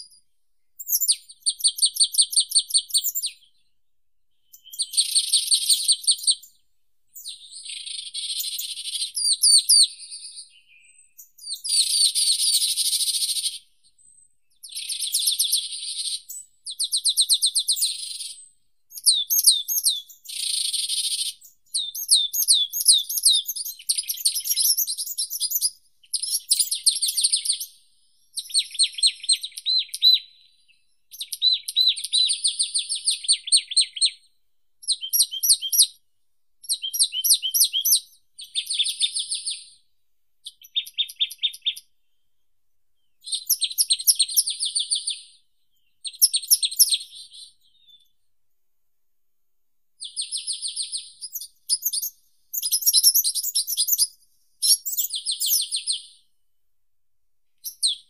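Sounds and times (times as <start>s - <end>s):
songbird trilling: 50.0s - 56.1s.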